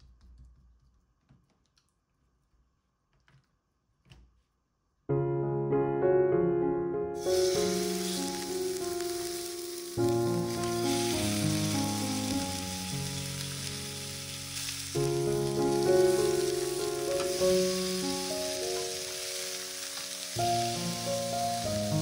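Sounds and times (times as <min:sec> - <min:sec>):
gentle background music: 0:05.2 - 0:22.0
meat sizzling in oil: 0:07.2 - 0:22.0.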